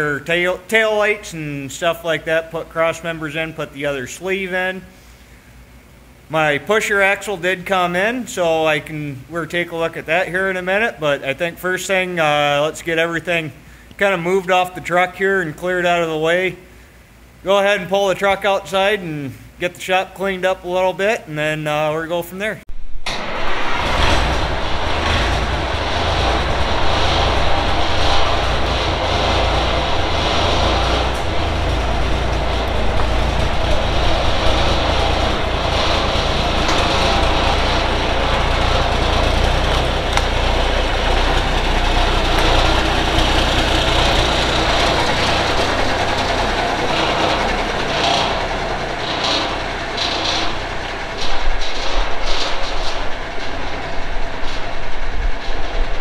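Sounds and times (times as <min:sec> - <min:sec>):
diesel truck engine rumbling: 0:00.0 - 0:17.4, 0:22.7 - 0:56.0.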